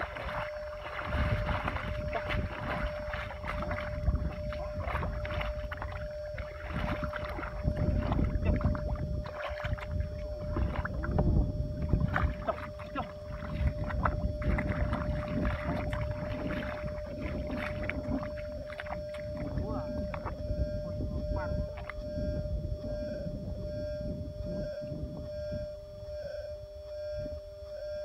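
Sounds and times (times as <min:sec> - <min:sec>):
feet squelching out of mud: 0:00.0 - 0:11.1, 0:12.0 - 0:20.3
wading through muddy water: 0:00.0 - 0:26.5.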